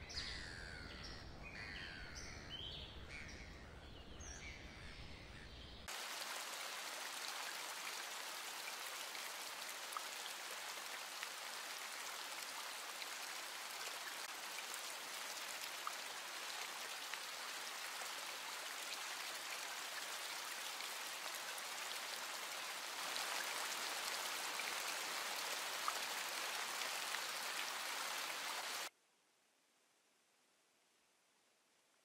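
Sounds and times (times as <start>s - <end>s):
trickling water hiss: 5.8s - 28.9s.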